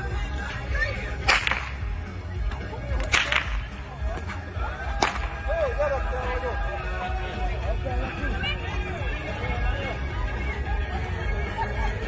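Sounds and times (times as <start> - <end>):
whip cracking: 1.2 - 1.8, 3.0 - 4.3, 5.0 - 5.4.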